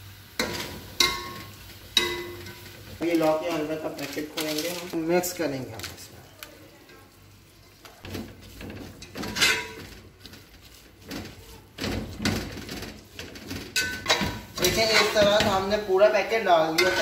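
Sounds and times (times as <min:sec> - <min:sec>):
metal spatula scraping pot: 0:06.9 - 0:17.0.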